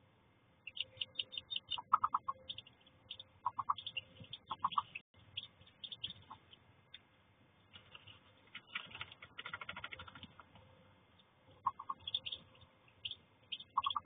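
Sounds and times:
ducklings peeping: 0:00.6 - 0:14.0.

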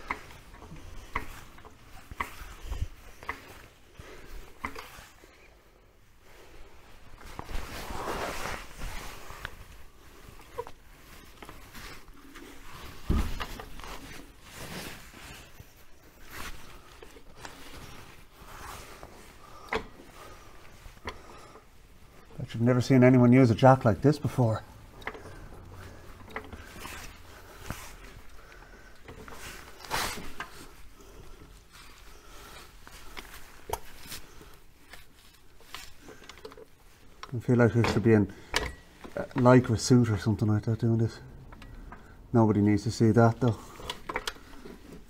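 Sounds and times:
light clicks and knocks of metal: 0:00.0 - 0:05.1, 0:24.1 - 0:30.8, 0:43.4 - 0:45.0.

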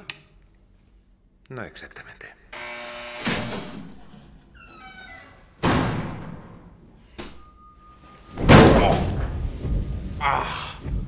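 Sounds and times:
thin electric buzz: 0:02.5 - 0:03.9
hard slam: 0:05.6 - 0:06.7, 0:08.3 - 0:10.0
head slammed onto table booming: 0:08.4 - 0:09.3.

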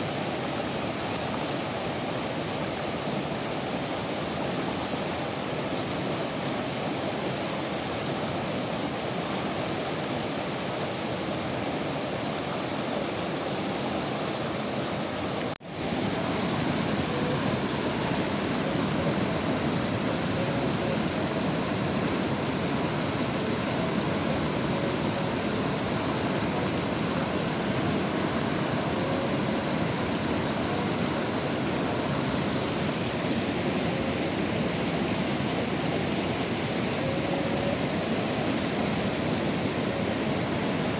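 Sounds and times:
river rapids roaring over rocks: 0:00.0 - 0:40.9.

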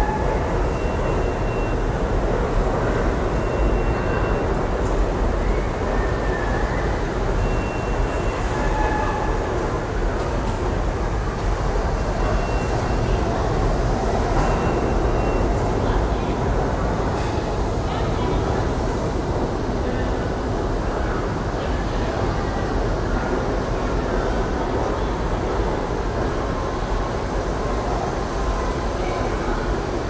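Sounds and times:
subway train rumbling past: 0:00.0 - 0:30.0
faint high-pitched train tones: 0:02.8 - 0:09.9, 0:12.0 - 0:13.5.

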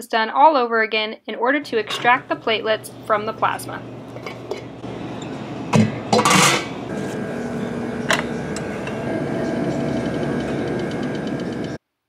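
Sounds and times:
machine hum: 0:01.6 - 0:11.8
metallic lid clatter: 0:01.8 - 0:02.2, 0:06.1 - 0:06.8.

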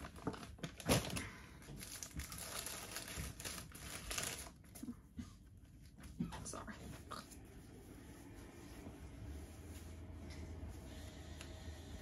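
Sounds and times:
paper rustling and crinkling: 0:00.0 - 0:04.9.

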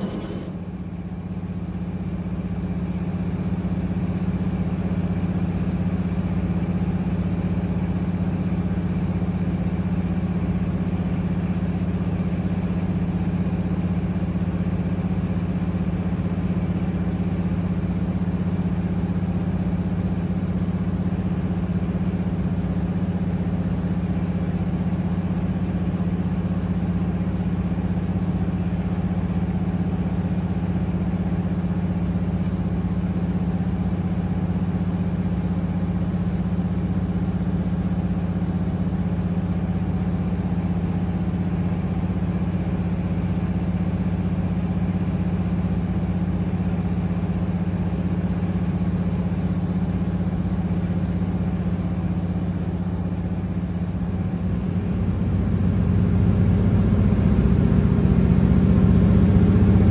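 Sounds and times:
plane engine and propeller droning: 0:00.0 - 0:01.8, 0:50.0 - 0:59.9.

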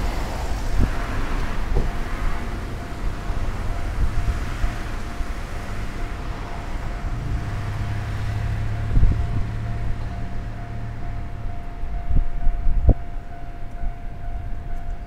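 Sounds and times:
wind on microphone: 0:00.0 - 0:04.8, 0:08.7 - 0:09.8
vehicles rumbling: 0:00.0 - 0:15.0.

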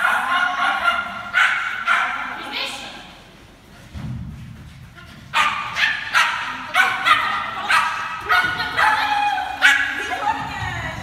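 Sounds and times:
dog barking: 0:00.0 - 0:02.4, 0:05.3 - 0:09.0, 0:09.6 - 0:10.0.

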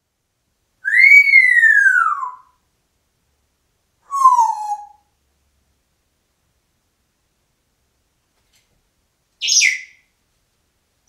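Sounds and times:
parrot whistling: 0:00.8 - 0:02.6, 0:04.1 - 0:05.0, 0:09.4 - 0:10.0.

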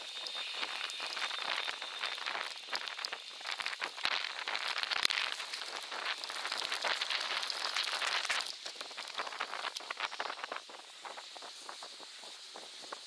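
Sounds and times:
rain falling: 0:00.1 - 0:10.6.

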